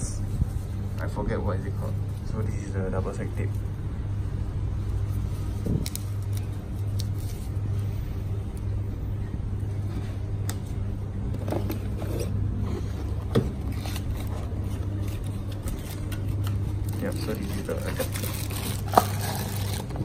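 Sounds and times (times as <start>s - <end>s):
low hum: 0.0s - 20.0s
paper backing peeling: 4.9s - 8.0s, 11.6s - 20.0s
cardboard packaging rustling: 11.4s - 20.0s.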